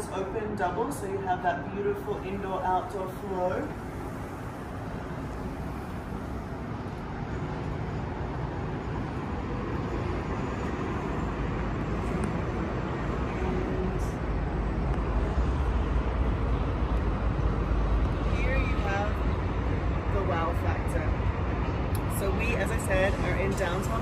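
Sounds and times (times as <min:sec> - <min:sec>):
distant city traffic: 0:00.0 - 0:24.0
wind: 0:00.0 - 0:24.0.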